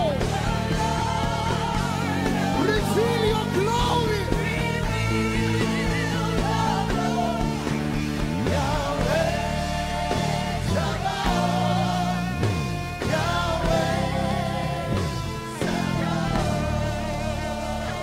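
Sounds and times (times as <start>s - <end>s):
band with guitar and drums: 0.0s - 18.0s
voices singing long notes: 0.0s - 18.0s.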